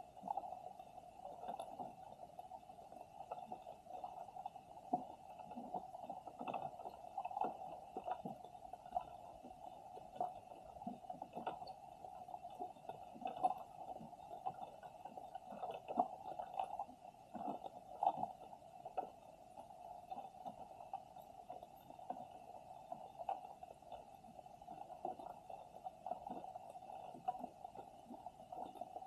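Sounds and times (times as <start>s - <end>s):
underwater low hum: 0.0s - 29.0s.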